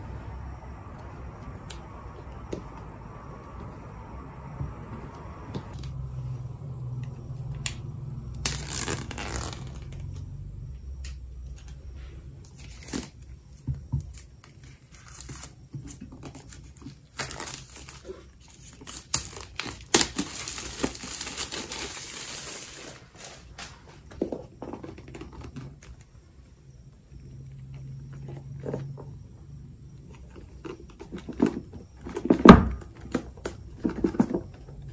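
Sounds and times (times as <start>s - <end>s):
plastic wrap crinkling: 17.1s - 23.7s.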